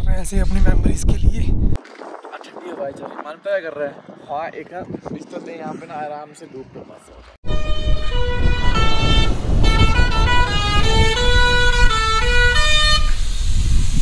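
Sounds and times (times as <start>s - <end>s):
wind: 0.0s - 14.0s
truck musical horn playing a tune: 7.4s - 13.3s.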